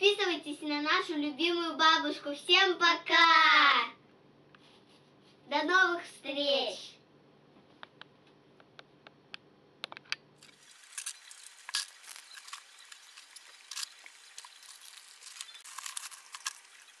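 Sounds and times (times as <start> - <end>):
plastic containers rustling: 10.4 - 17.0
steady hiss: 10.4 - 17.0.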